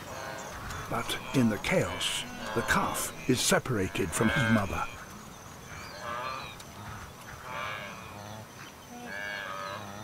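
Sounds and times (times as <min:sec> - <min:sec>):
wildebeest calf calling: 0:00.0 - 0:05.1, 0:05.7 - 0:08.2.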